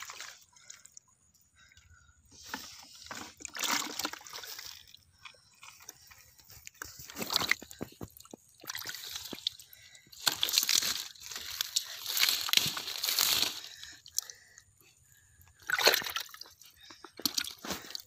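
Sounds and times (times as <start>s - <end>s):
small water splashes: 0.0s - 1.0s, 3.1s - 5.8s, 7.1s - 14.3s, 15.6s - 18.0s
hands squelching in wet mud: 3.1s - 14.6s, 15.5s - 18.0s.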